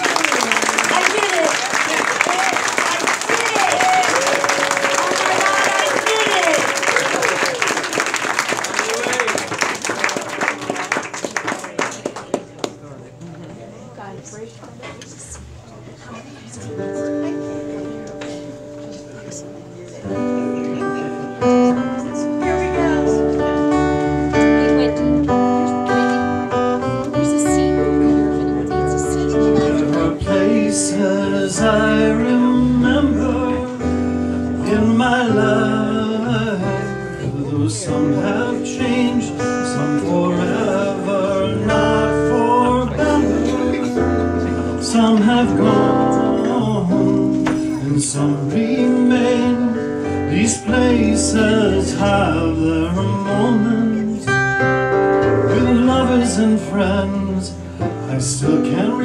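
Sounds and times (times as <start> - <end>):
acoustic guitars: 0.0 - 59.0
person singing: 25.3 - 59.0.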